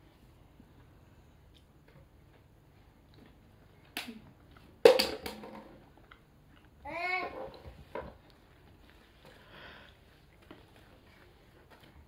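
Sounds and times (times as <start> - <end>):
eating and food handling: 5.7 - 12.0.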